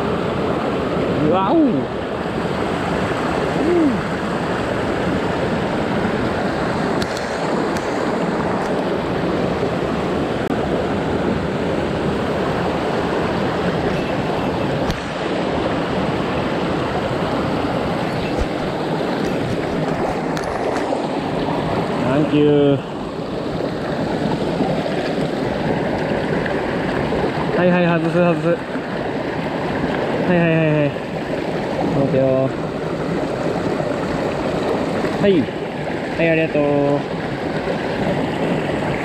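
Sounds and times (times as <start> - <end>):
water rushing over rocks: 0.0 - 39.0.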